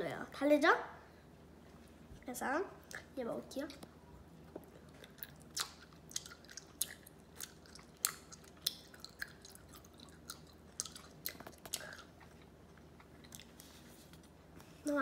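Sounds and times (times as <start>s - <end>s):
person chewing candy: 4.6s - 14.3s.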